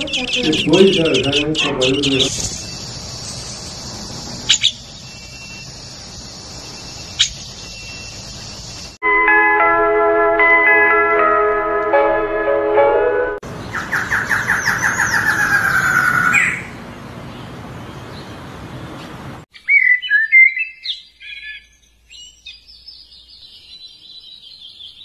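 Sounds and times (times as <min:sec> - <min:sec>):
bird chirps: 0:00.0 - 0:09.0, 0:19.5 - 0:25.0
birds singing whistled notes: 0:00.0 - 0:09.0, 0:13.6 - 0:16.7, 0:19.5 - 0:25.0
faint high bird trill: 0:00.0 - 0:09.0.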